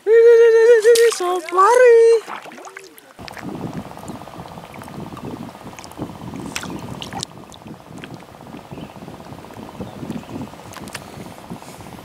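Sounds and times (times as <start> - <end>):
water sloshing and lapping: 0.7 - 11.3
small splashes or drips: 0.8 - 8.6.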